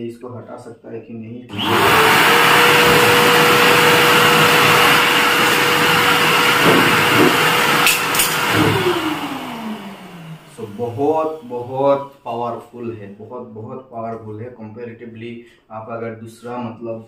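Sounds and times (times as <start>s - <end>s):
vacuum blower rushing air: 1.5s - 12.0s.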